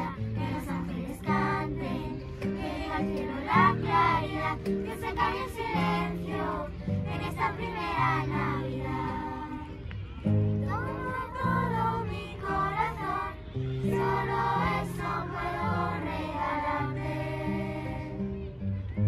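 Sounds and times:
girls choir singing: 0.0s - 18.6s.

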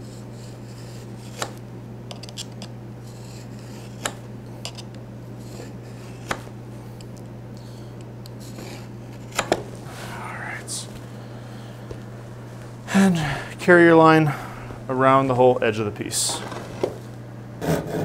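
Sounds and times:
knife scratching wood: 0.0s - 6.5s, 8.4s - 9.5s
low hum: 0.0s - 17.9s.

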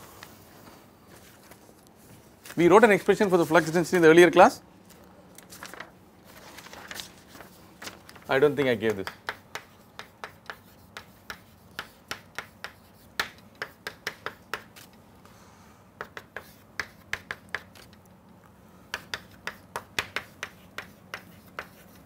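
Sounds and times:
chalk tapping on a blackboard: 8.4s - 14.9s, 16.0s - 17.9s, 18.9s - 22.0s.

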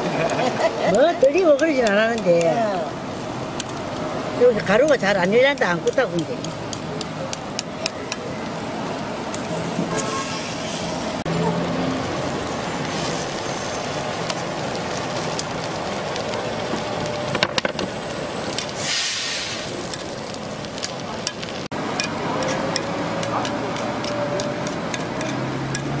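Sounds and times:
batter sizzling in a mold: 12.2s - 26.0s
metal tool scraping a pan: 22.0s - 25.9s.

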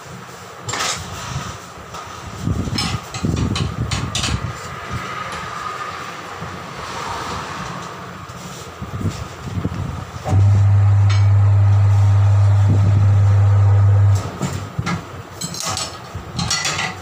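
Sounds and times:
metallic clanks and scrapes: 0.7s - 1.3s
turntable motor humming: 10.3s - 14.8s.

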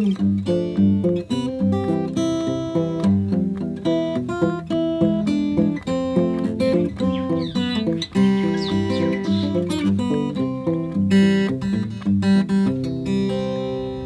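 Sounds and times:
fingerstyle acoustic guitar blues: 0.0s - 14.0s.

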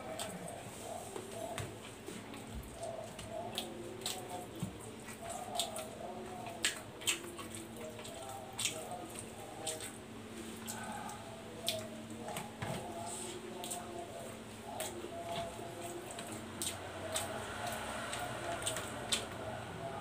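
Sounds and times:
faint steady hum: 0.0s - 20.0s
mouth smacking and chewing: 2.3s - 12.5s, 14.7s - 19.4s.

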